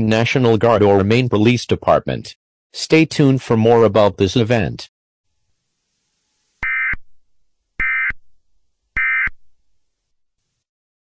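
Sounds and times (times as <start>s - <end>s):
alert data tone bursts: 6.6s - 7.0s, 7.8s - 8.2s, 9.0s - 9.3s.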